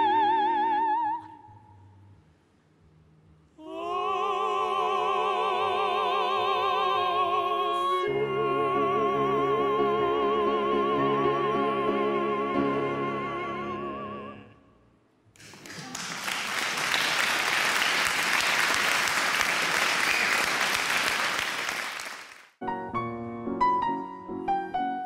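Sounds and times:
opera duet singing: 0.0 - 1.5, 3.6 - 14.6
piano: 5.4 - 14.6, 22.6 - 25.0
audience applause: 15.4 - 22.5.

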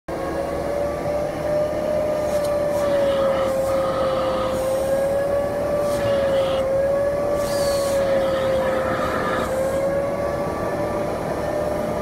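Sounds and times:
vacuum whining: 0.3 - 12.0
nozzle sucking along fabric: 2.2 - 6.7, 7.3 - 10.0.

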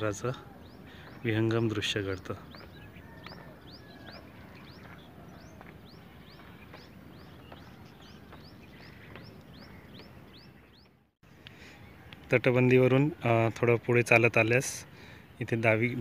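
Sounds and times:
faint outdoor background noise: 0.0 - 16.0
small bird chirping: 0.5 - 11.1.

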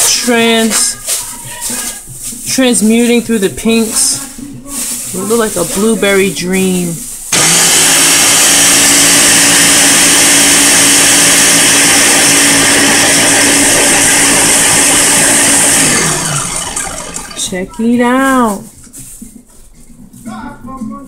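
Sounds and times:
blender motor running: 7.3 - 17.5.

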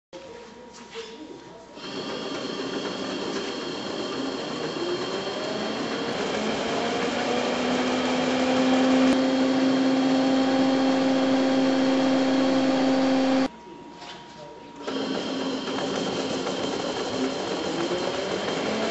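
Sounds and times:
printer whirring: 1.8 - 13.5, 14.8 - 18.9.

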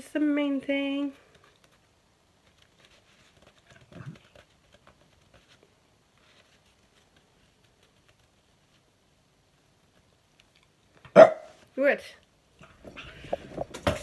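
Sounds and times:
paper tissue rustling: 1.6 - 9.0.

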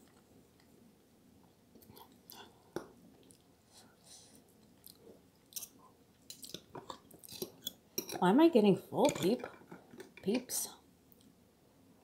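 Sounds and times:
wet chewing sounds: 4.5 - 7.7.

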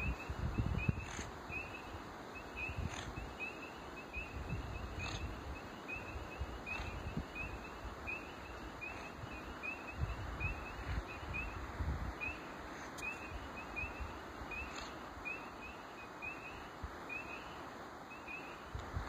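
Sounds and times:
wind rumble on microphone: 0.0 - 3.5, 4.1 - 15.0, 18.4 - 19.0
frogs peeping: 0.0 - 18.7.

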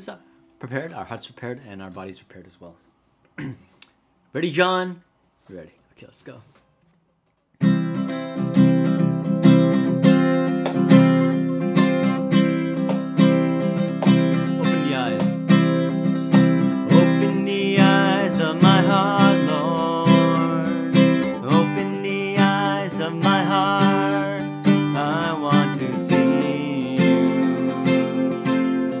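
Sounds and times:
acoustic guitar strumming: 7.6 - 29.0
man singing: 14.3 - 29.0.

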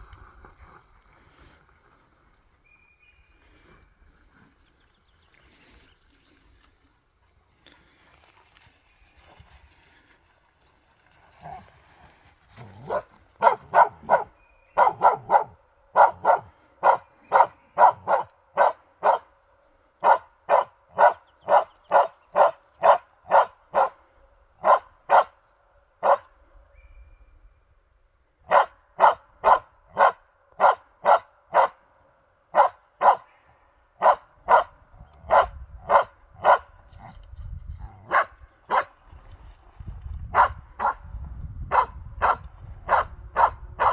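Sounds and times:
dog barking: 12.8 - 19.3, 20.0 - 24.0, 24.6 - 25.4, 26.0 - 26.3, 28.5 - 31.8, 32.5 - 33.3, 34.0 - 34.7, 35.3 - 37.1, 38.0 - 38.9, 40.3 - 41.0, 41.7 - 43.9.

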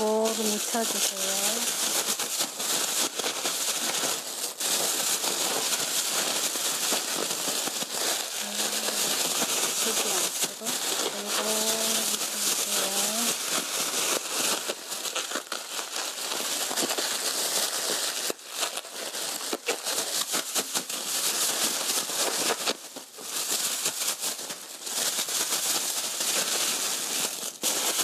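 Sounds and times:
plastic bag crinkling: 0.0 - 28.0.

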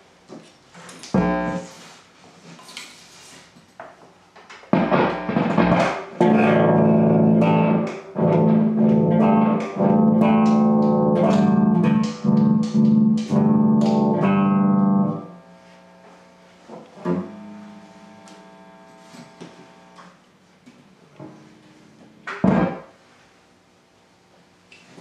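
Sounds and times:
electric bass notes: 1.1 - 1.7, 4.7 - 20.1, 21.2 - 22.9.

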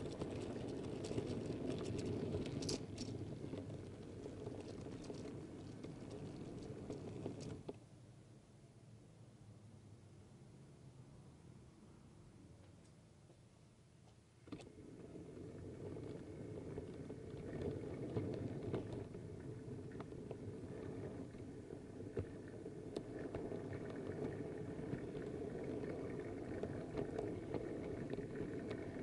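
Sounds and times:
model train wheels rumbling: 0.0 - 7.8, 14.6 - 29.0
wheels clicking over rail joints: 0.0 - 7.8, 14.4 - 29.0.

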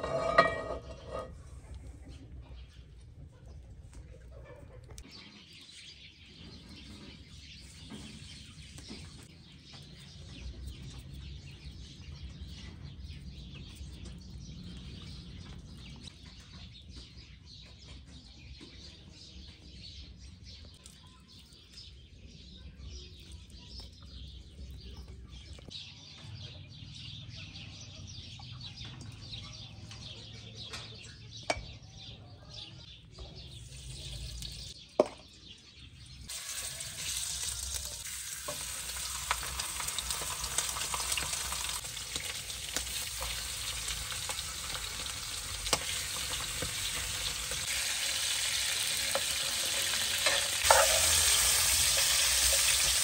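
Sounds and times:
birds calling: 0.0 - 1.4, 22.9 - 53.0
wood fire crackling: 36.3 - 53.0.

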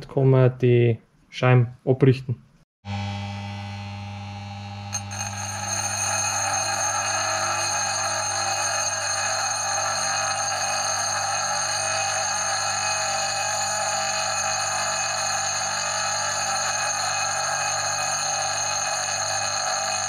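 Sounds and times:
electric motor humming: 2.9 - 20.0
grinding wheel hiss: 4.9 - 20.0.

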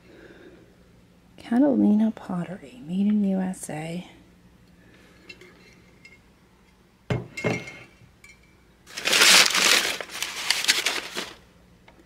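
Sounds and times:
pottery clinking: 7.1 - 8.6
tissue paper crinkling: 8.9 - 11.4.

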